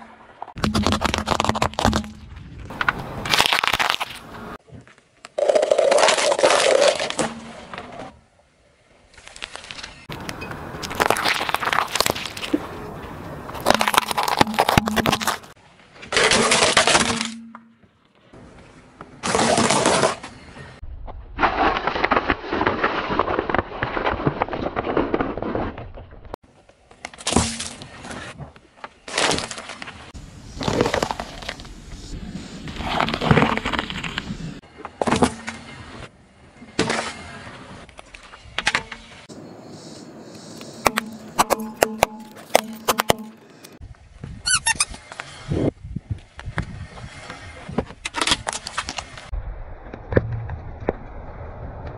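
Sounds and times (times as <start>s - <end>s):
tyre crushing objects: 0.5s - 4.6s, 13.5s - 17.7s, 40.8s - 43.4s.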